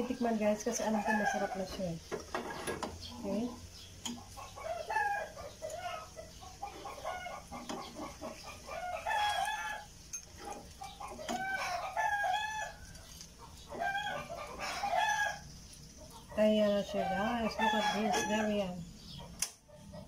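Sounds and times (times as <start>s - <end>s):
chickens clucking: 0.0s - 20.0s
rooster crowing: 0.8s - 1.7s, 4.4s - 7.6s, 8.5s - 9.9s, 11.1s - 13.0s, 13.7s - 15.5s, 16.8s - 18.8s.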